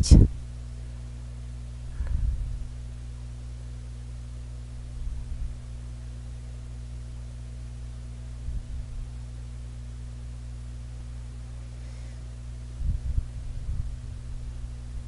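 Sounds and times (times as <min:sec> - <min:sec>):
electrical mains hum: 0:00.0 - 0:15.0
soft low thumps: 0:01.9 - 0:02.8, 0:12.8 - 0:15.0.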